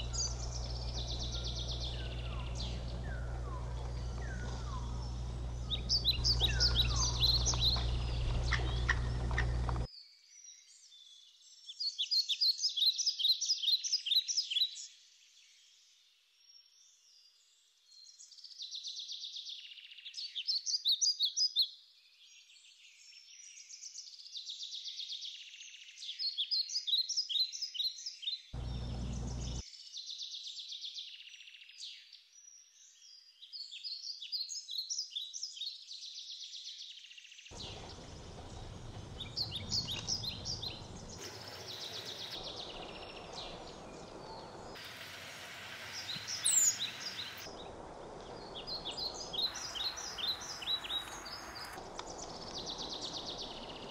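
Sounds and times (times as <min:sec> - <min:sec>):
low rumble: 0:00.0 - 0:09.9, 0:28.6 - 0:29.6, 0:37.6 - 0:44.8
small birds chirping: 0:00.0 - 0:09.9, 0:26.0 - 0:36.8, 0:37.5 - 0:53.9
steady hiss: 0:00.0 - 0:09.9, 0:37.6 - 0:53.9.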